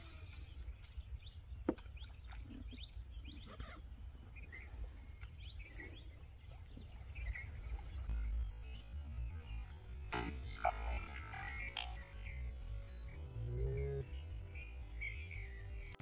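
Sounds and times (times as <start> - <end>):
low rumble: 4.1 - 16.0
high insect-like tone: 4.2 - 16.0.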